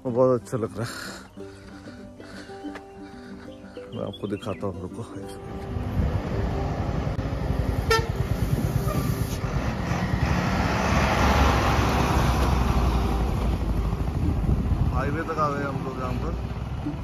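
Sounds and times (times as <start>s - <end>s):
traffic engine rumble: 0.5s - 17.0s
horn toot: 7.8s - 9.4s.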